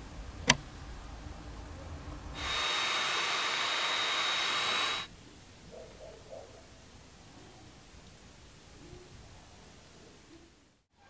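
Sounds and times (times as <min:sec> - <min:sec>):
sharp switch click: 0:00.4 - 0:00.6
heat gun blowing: 0:02.4 - 0:05.1.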